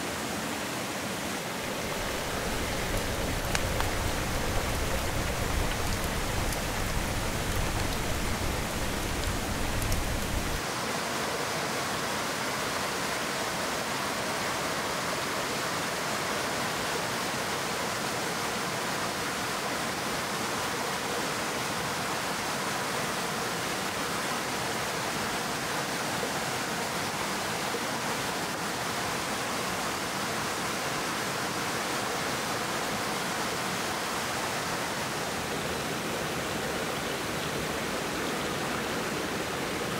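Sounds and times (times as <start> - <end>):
rocky stream rushing: 0.0 - 39.9
campfire crackling: 1.6 - 10.6.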